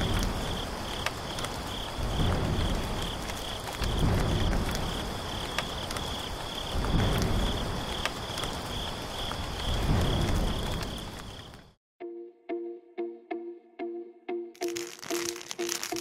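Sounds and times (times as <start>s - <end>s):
crickets chirping: 0.0s - 11.8s.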